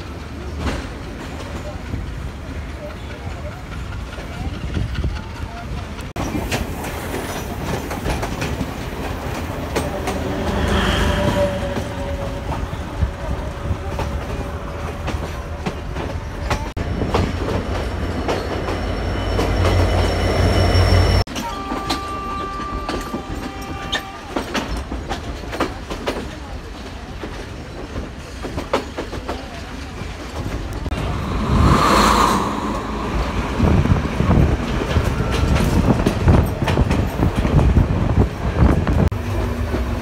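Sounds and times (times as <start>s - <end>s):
train rumble: 0.0s - 40.0s
steady high tone: 30.9s - 35.4s.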